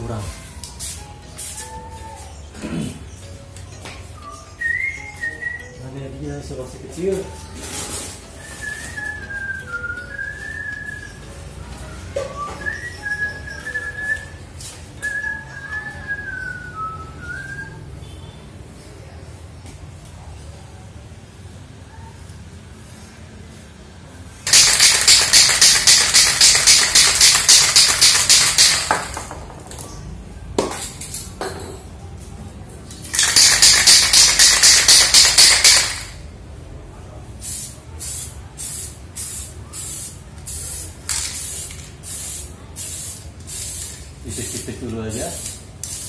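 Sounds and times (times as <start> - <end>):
spray paint can hissing: 24.4 - 29.4, 33.0 - 36.2, 37.4 - 46.0.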